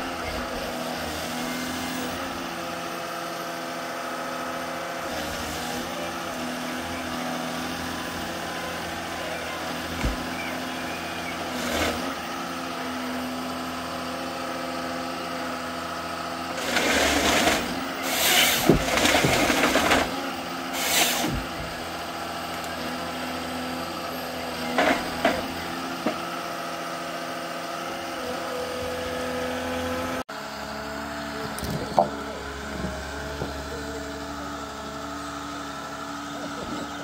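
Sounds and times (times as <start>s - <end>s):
forest harvester running: 0.0s - 37.0s
harvester head cutting bursts: 16.6s - 21.5s.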